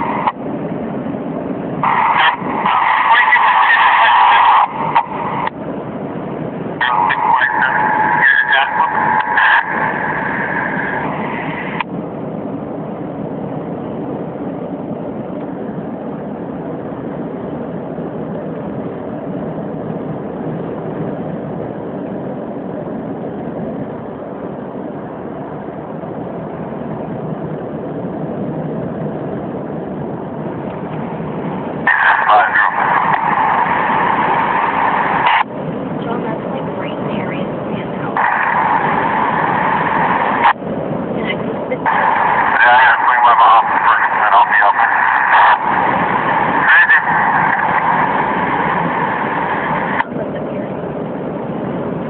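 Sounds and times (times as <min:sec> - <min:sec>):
car cabin road and engine noise: 0:00.0 - 0:52.0
high-pitched broken tone: 0:06.8 - 0:11.8, 0:41.2 - 0:50.1.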